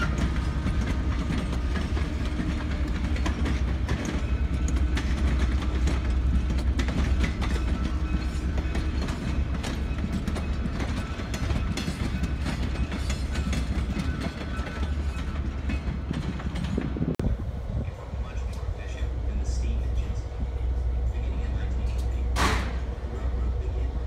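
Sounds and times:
train wheels clicking on rails: 0:00.0 - 0:17.2, 0:18.0 - 0:24.0.

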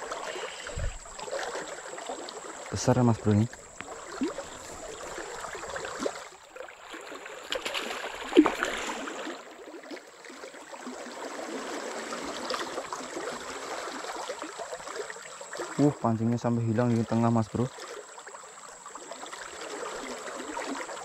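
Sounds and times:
fish splashing at surface: 0:03.8 - 0:09.4.

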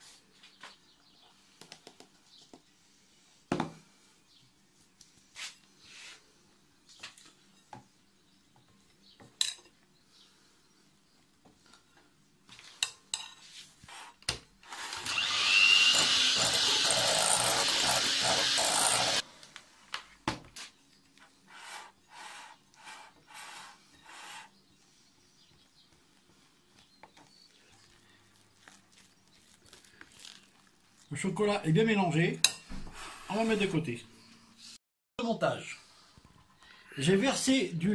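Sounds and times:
electric hand mixer beating: 0:14.7 - 0:19.2.

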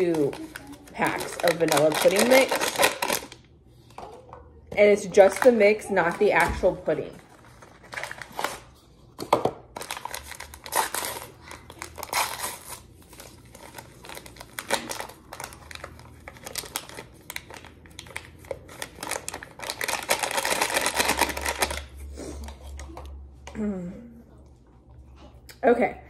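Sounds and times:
paper pouches crinkling and tearing: 0:00.0 - 0:03.4, 0:07.2 - 0:08.8, 0:09.7 - 0:22.6.

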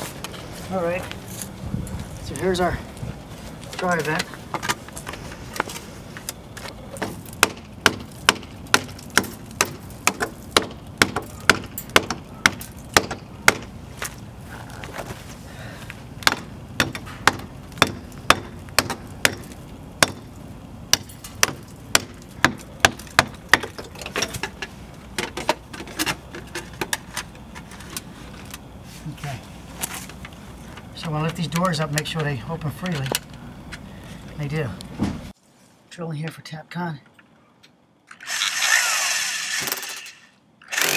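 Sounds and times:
hammer striking concrete: 0:07.0 - 0:13.7, 0:16.2 - 0:20.3.

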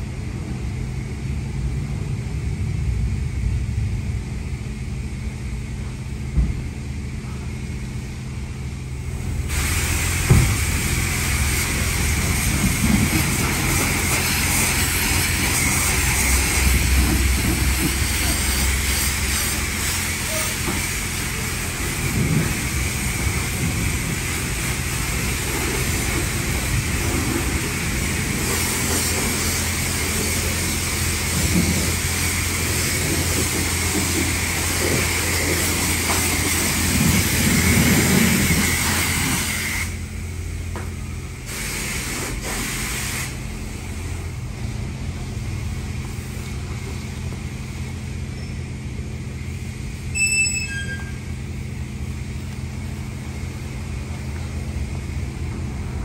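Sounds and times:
low machine hum: 0:00.0 - 0:09.5
steady hiss: 0:08.9 - 0:45.0
brief high chirp: 0:50.1 - 0:51.3.

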